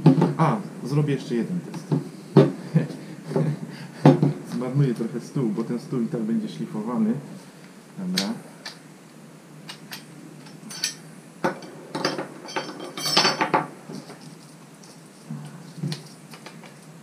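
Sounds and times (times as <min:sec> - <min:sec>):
metal clicks and clinks: 0:09.7 - 0:11.0, 0:11.6 - 0:15.0.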